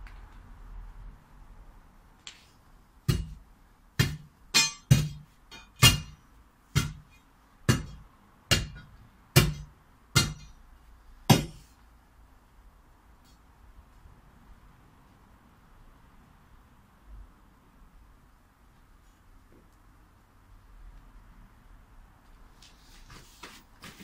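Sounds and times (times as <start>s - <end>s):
steel bar clanking on concrete: 4.6s - 6.1s.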